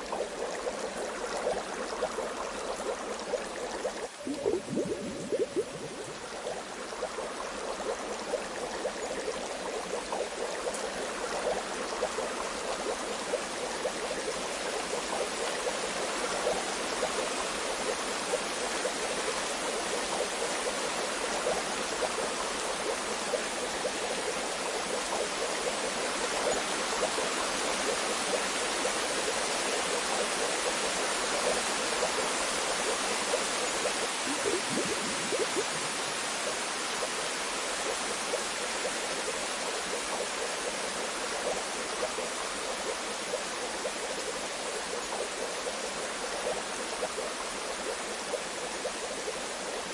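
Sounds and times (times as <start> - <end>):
bath water bubbling: 0.0 - 15.7, 32.9 - 37.2.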